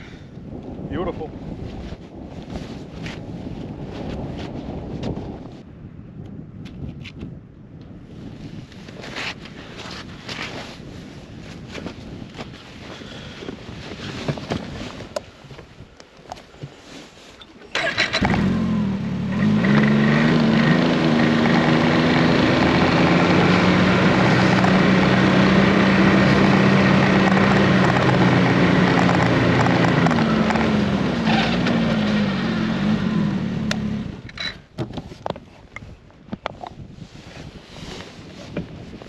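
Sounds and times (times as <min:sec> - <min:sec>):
snowmobile engine running: 0:17.8 - 0:34.3.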